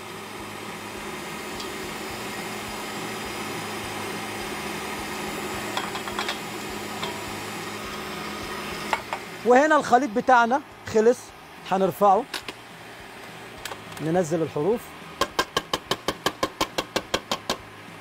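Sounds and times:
stand mixer running: 0.0s - 9.5s.

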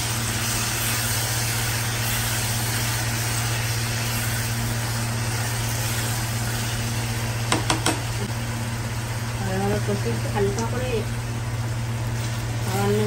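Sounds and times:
low machine hum with hiss: 0.0s - 13.0s
spatula tapping metal pan: 7.5s - 8.0s.

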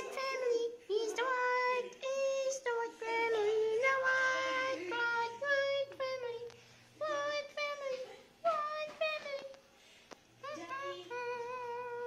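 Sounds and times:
child singing held notes: 10.4s - 12.0s.

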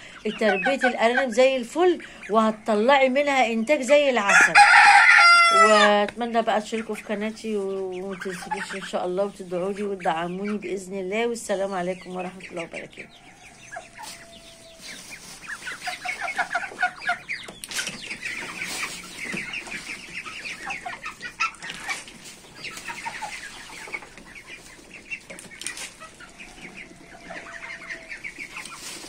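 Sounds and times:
chicks and ducklings peeping: 0.0s - 29.0s.

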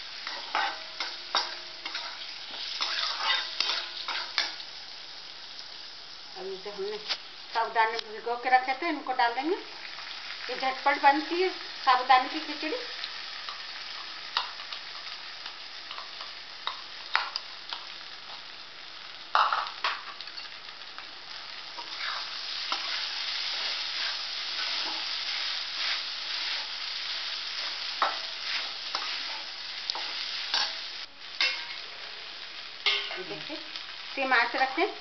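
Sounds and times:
food sizzling in hot oil: 0.0s - 35.0s
spatula scraping metal pan: 0.2s - 4.5s.

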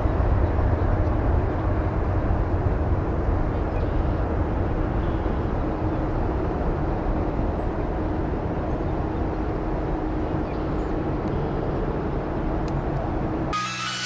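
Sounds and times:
jet airliner taking off: 13.4s - 14.0s.

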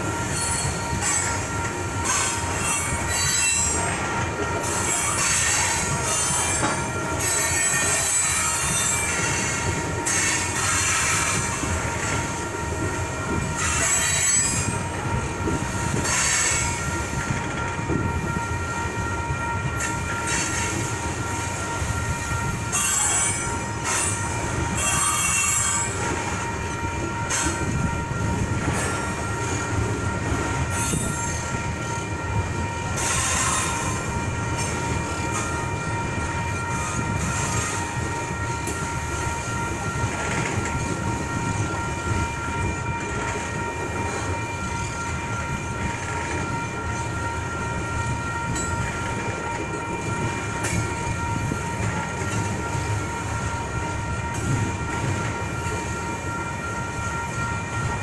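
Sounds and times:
crossing bell ringing: 0.0s - 58.0s
train wheels rumbling on rail: 0.0s - 58.0s
shrill wheel squeal: 0.1s - 58.0s.

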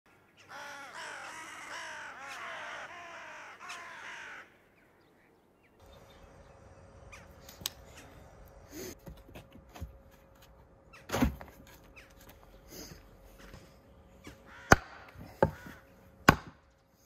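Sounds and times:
bird calling: 0.1s - 9.0s, 11.8s - 16.1s.

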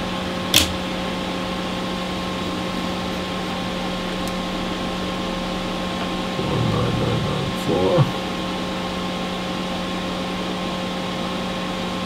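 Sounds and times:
machine hum: 0.0s - 12.0s
sharp click: 0.5s - 0.8s.

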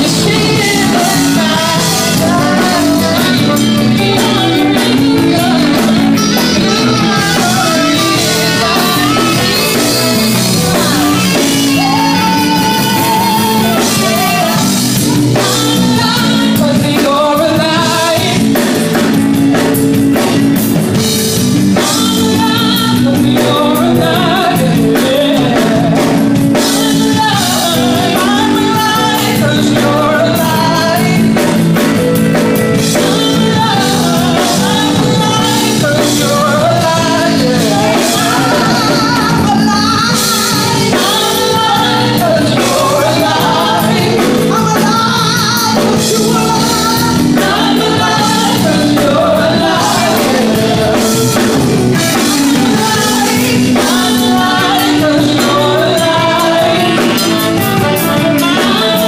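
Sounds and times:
saxophone: 0.0s - 14.9s, 51.1s - 59.0s
drum kit: 0.0s - 59.0s
electric guitar: 0.0s - 59.0s
keyboard: 0.0s - 59.0s
person singing: 0.0s - 59.0s.

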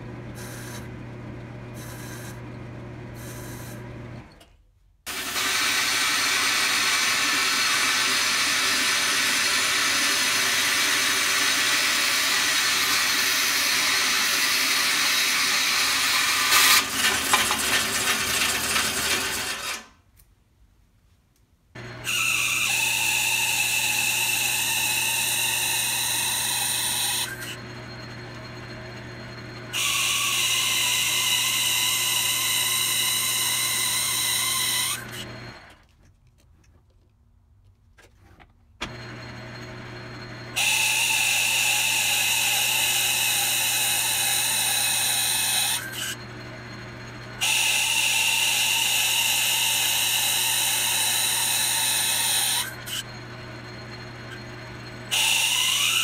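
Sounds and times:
lathe cutting whine: 21.8s - 35.7s, 38.8s - 56.0s
lathe motor hum: 21.8s - 35.7s, 38.9s - 56.0s.

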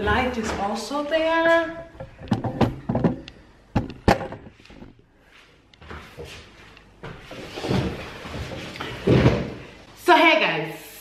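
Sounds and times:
objects knocking on wooden table: 2.0s - 4.5s.

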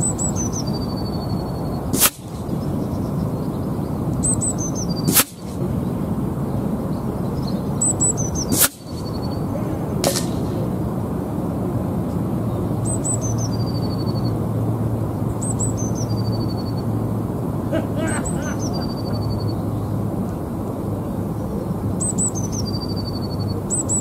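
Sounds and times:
small birds chirping: 0.0s - 24.0s
wind noise: 0.0s - 24.0s
air rifle shot: 1.9s - 2.6s, 5.0s - 5.6s, 8.5s - 9.2s, 10.0s - 10.8s.

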